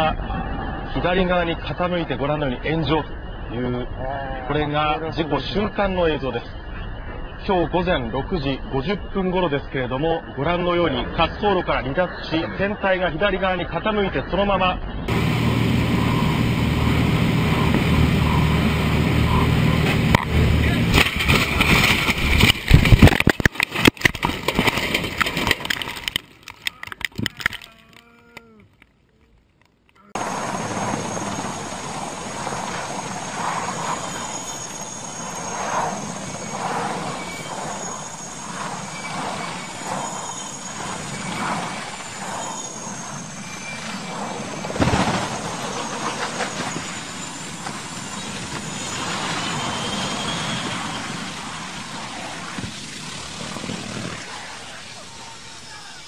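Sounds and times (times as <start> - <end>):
high wavering turbine whine: 0.0 - 26.4, 30.2 - 56.0
helicopter engine and rotor: 15.1 - 23.4, 30.2 - 55.9
plane crash rattling and banging: 15.1 - 26.3, 30.2 - 55.0
loud thump: 44.8 - 45.4.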